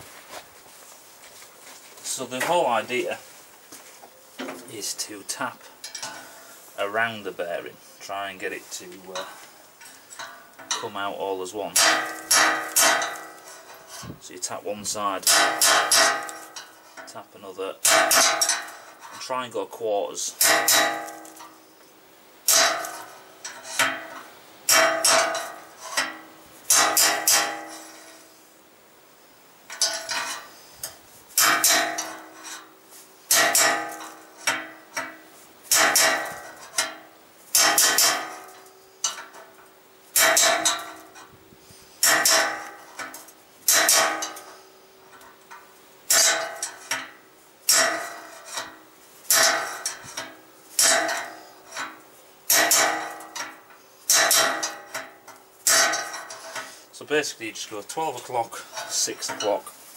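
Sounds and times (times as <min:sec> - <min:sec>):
hammer striking steel rod: 0:11.7 - 0:13.5, 0:15.2 - 0:16.7, 0:17.8 - 0:18.8, 0:20.4 - 0:21.6, 0:22.5 - 0:28.1, 0:31.4 - 0:32.6, 0:33.3 - 0:39.4, 0:40.2 - 0:41.2, 0:42.0 - 0:44.6, 0:46.1 - 0:56.6.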